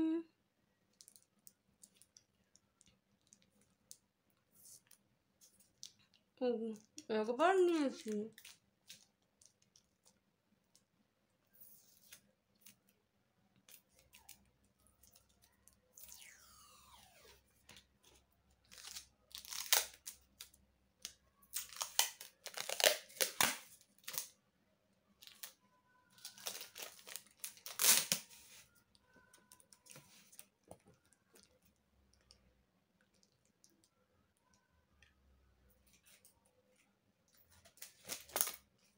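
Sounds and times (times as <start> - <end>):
tape crinkling: 15.0 - 24.4, 25.2 - 25.6, 26.2 - 28.7, 37.6 - 38.6
packing tape tearing off roll: 18.7 - 20.2, 21.6 - 24.3, 26.2 - 28.4, 37.8 - 38.6.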